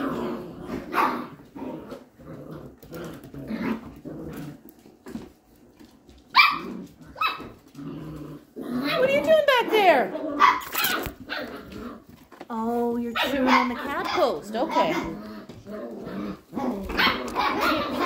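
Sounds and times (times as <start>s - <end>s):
puppies play-growling: 0.0s - 18.0s
puppy barking: 0.9s - 1.3s, 6.3s - 7.6s, 10.3s - 11.8s, 13.1s - 15.2s, 16.6s - 18.0s.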